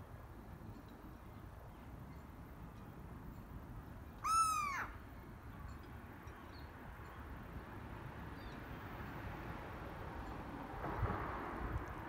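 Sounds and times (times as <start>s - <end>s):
gull calling: 4.2s - 5.0s.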